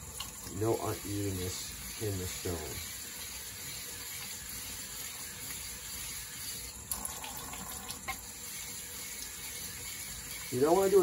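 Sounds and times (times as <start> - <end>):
tap water splashing into sink: 6.9 - 8.3.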